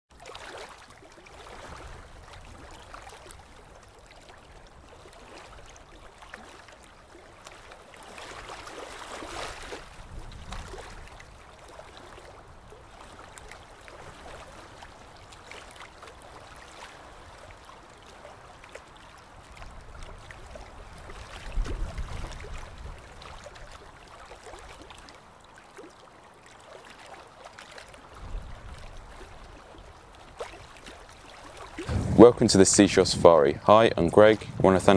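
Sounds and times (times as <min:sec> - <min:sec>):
water washing and trickling: 0:00.1 - 0:34.9
brief low rumbles: 0:31.8 - 0:34.9.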